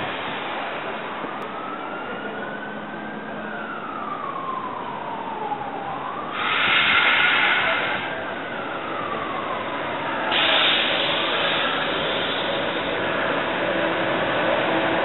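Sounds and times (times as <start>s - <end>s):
loud hissing blast: 6.3s - 8.2s, 10.3s - 13.1s.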